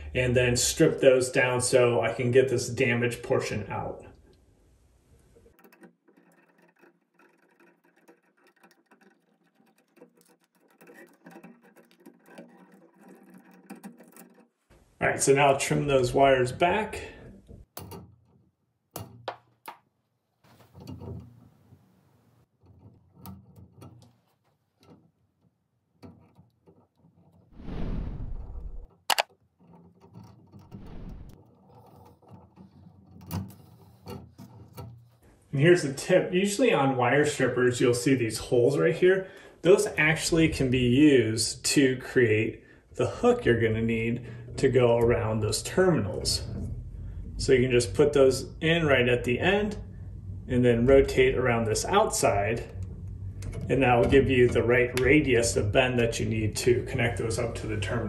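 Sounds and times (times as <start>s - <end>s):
wire strippers clicking: 5.2s - 14.6s.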